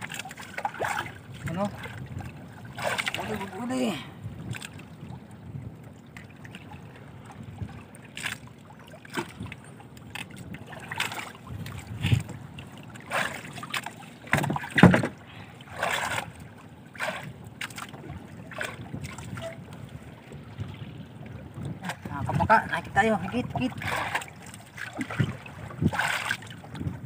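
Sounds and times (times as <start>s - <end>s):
water splashing against boat hull: 0.0s - 27.0s.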